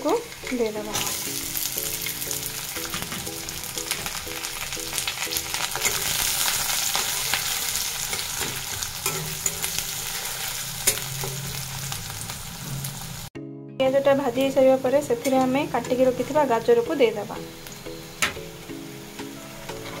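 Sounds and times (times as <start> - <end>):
onions sizzling in oil: 0.0 - 13.3, 14.3 - 20.0
spatula scraping and tapping pan: 19.7 - 20.0.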